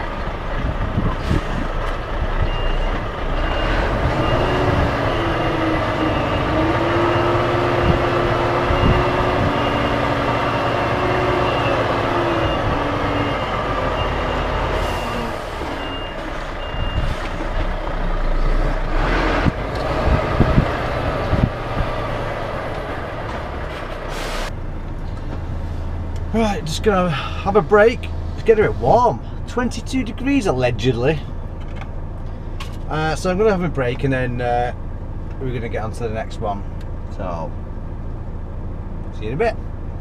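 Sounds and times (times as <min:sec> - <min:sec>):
diesel engine running: 0:00.0 - 0:40.0
reversing alarm beeps: 0:02.5 - 0:07.5, 0:08.7 - 0:10.8, 0:11.4 - 0:15.2, 0:15.8 - 0:17.2.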